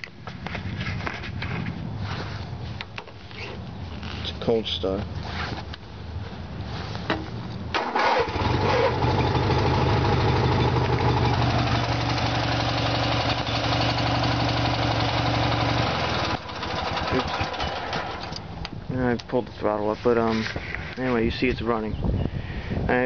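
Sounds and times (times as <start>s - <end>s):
engine cranking on starter: 7.7s - 12.6s, 15.6s - 18.5s
lawn tractor engine running: 7.8s - 18.6s.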